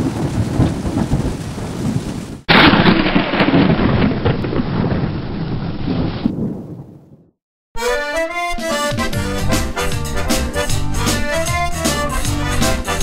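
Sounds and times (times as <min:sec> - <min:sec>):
steady rain: 0:00.0 - 0:05.4
thunder: 0:00.0 - 0:07.3.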